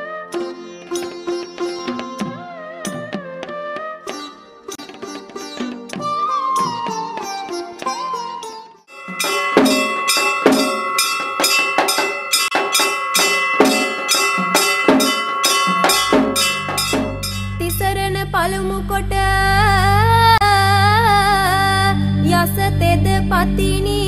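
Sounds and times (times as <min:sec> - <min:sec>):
steady percussion beat: 0:08.9 - 0:17.7
person singing: 0:17.6 - 0:24.0.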